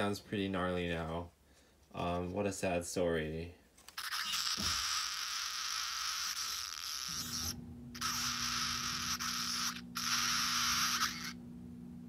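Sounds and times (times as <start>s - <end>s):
steady electrical hum: 0.0s - 12.0s
electronic static hiss: 4.0s - 11.4s.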